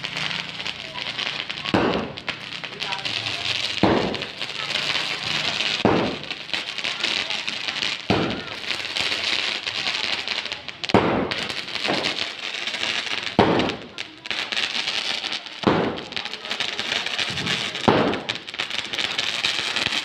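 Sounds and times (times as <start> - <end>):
dense firework crackle: 0.0 - 20.0
firework shots launching: 0.0 - 20.0.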